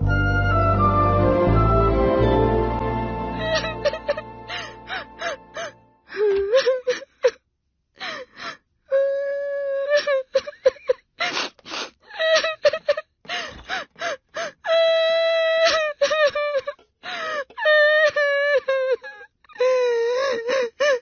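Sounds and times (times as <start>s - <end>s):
girl wailing: 3.4s - 7.0s
girl sobbing: 3.4s - 7.4s, 8.0s - 21.0s.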